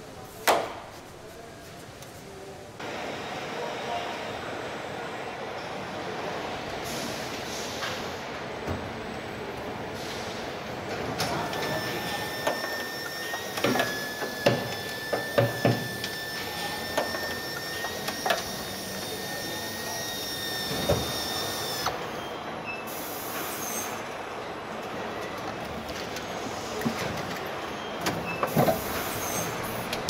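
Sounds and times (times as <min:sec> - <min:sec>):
high machine whine: 0:11.5 - 0:22.3.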